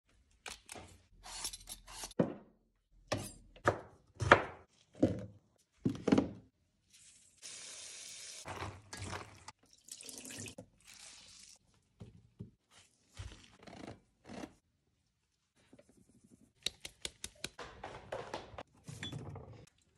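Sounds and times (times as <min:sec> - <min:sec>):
water running: 0:07.4 - 0:11.6
knocks and clatters at sink: 0:17.5 - 0:19.7.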